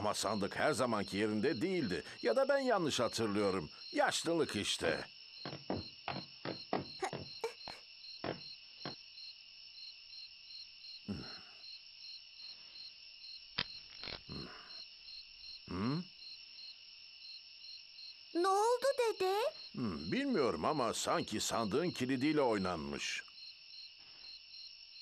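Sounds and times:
crickets chirping: 0:00.0 - 0:25.0
voice-like hum: 0:15.7 - 0:16.1.

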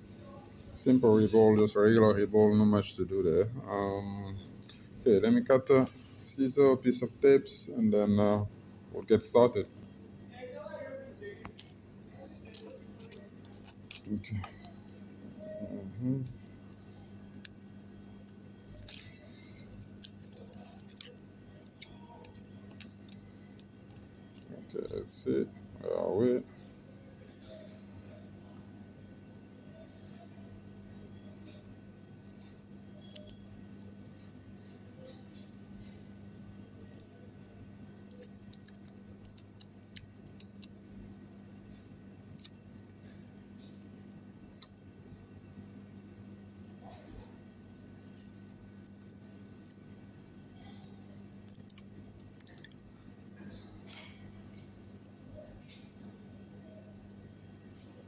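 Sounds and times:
low steady hum: 0:00.0 - 0:58.0
foil tape crinkling: 0:18.7 - 0:19.2, 0:19.8 - 0:23.7, 0:38.0 - 0:40.8, 0:51.4 - 0:54.2
scissors snipping: 0:19.8 - 0:23.6, 0:32.5 - 0:33.4, 0:38.0 - 0:40.8, 0:42.3 - 0:43.0, 0:44.5 - 0:44.8, 0:51.4 - 0:54.2.

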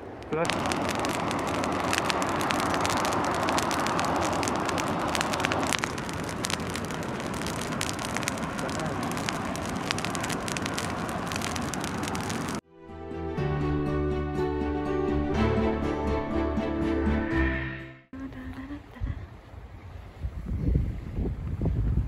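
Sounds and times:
bonfire crackling and popping: 0:00.0 - 0:12.6
fire rushing hiss: 0:00.0 - 0:12.6.

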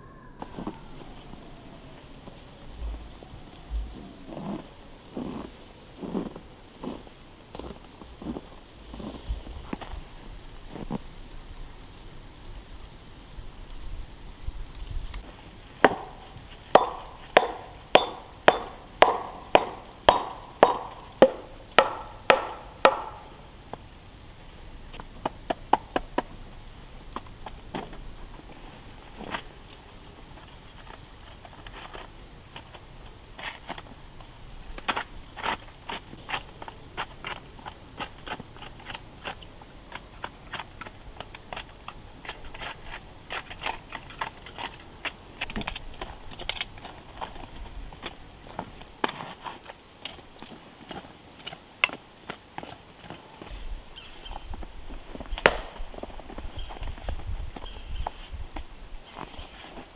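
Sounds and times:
footsteps crunching in snow: 0:02.1 - 0:11.4, 0:14.7 - 0:23.4, 0:46.8 - 0:59.9.

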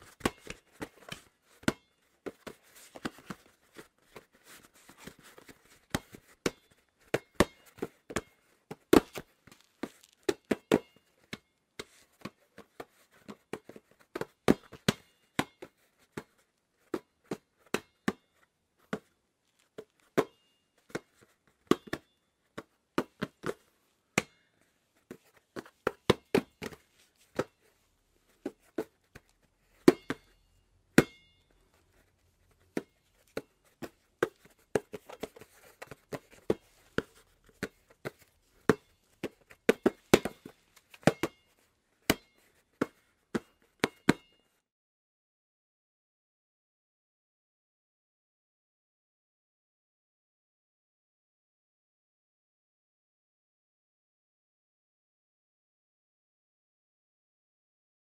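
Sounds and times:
hands slapping a basketball: 0:00.0 - 0:19.2, 0:19.8 - 0:27.7, 0:28.3 - 0:30.4, 0:31.0 - 0:31.2, 0:32.6 - 0:41.5, 0:42.1 - 0:44.4.

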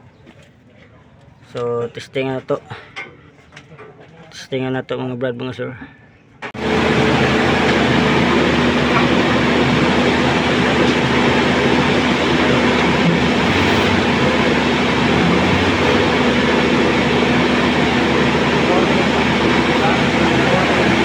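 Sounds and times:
hydraulic pump humming: 0:06.5 - 0:21.0
truck engine running: 0:06.5 - 0:21.0.

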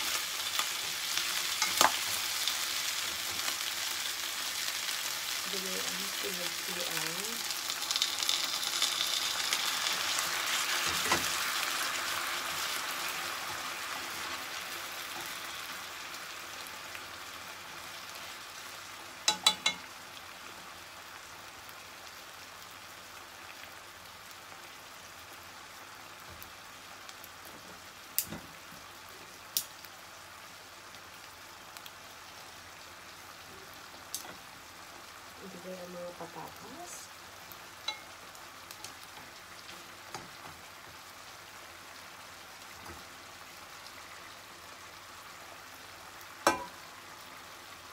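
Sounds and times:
broth sizzling in a frying pan: 0:00.0 - 0:47.9.

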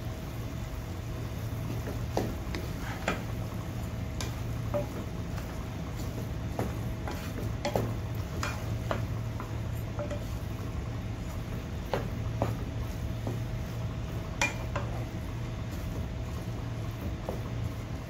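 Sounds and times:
mince sizzling: 0:00.2 - 0:18.0
spatula scraping frying pan: 0:01.9 - 0:10.5.

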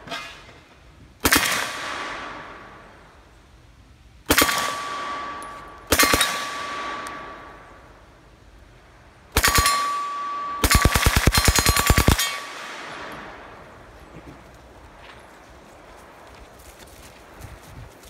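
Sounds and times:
ringing steel targets: 0:04.3 - 0:07.8, 0:09.3 - 0:13.6
submachine gun bursts: 0:10.6 - 0:12.4.

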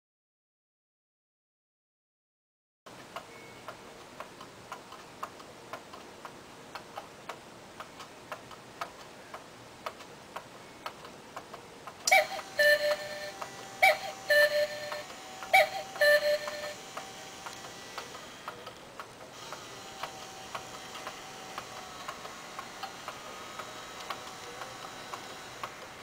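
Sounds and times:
clock ticking: 0:03.0 - 0:26.0
cuckoo clock calls: 0:12.0 - 0:18.8, 0:19.4 - 0:26.0.

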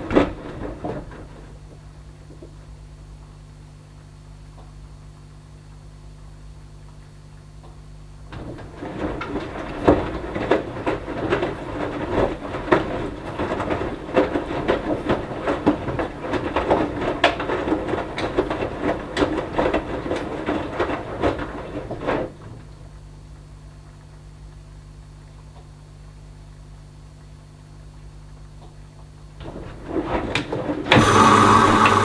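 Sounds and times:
washing machine drum turning: 0:29.4 - 0:32.0.

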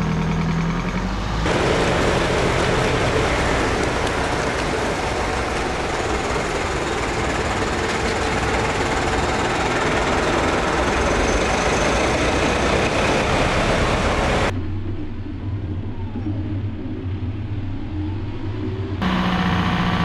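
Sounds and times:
low diesel engine drone: 0:00.0 - 0:20.0
tyres splashing through water: 0:01.5 - 0:14.5.

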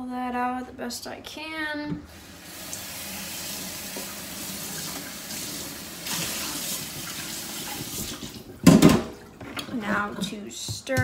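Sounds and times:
tap water running into sink: 0:02.1 - 0:10.4.

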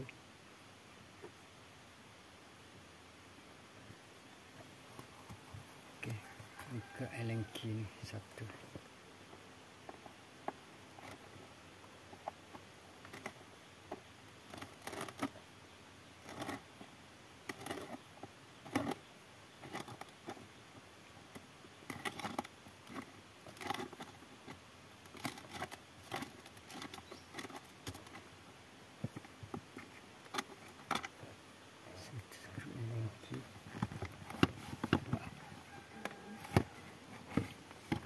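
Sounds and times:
hands handling car parts: 0:33.3 - 0:38.0.

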